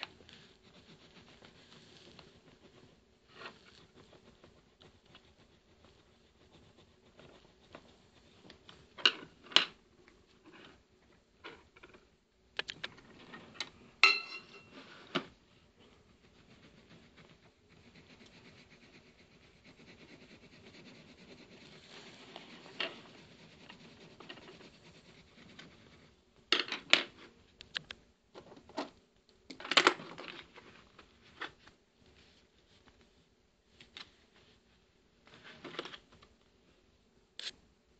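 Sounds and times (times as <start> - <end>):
colouring scratching on paper: 0.0 - 9.4, 15.5 - 26.2.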